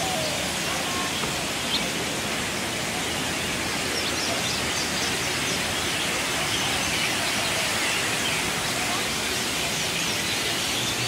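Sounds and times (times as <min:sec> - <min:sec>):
waterfall rushing over rocks: 0:00.0 - 0:11.0.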